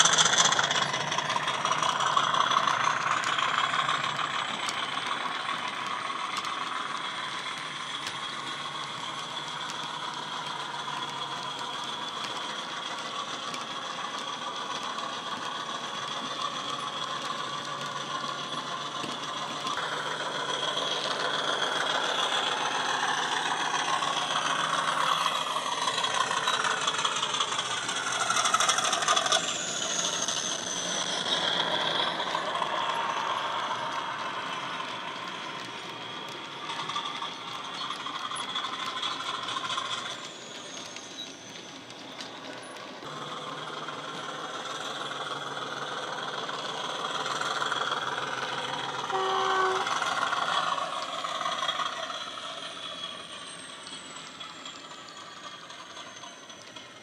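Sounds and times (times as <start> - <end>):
model train wheels rattling on track: 0.0 - 57.0
diesel engine sound from small speaker: 43.0 - 54.5.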